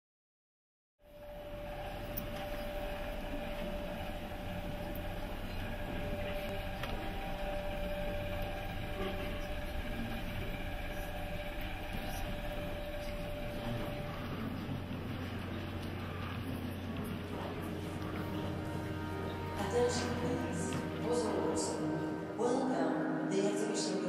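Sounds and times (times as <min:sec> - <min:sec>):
rumbling drone with hum: 0:01.1 - 0:22.2.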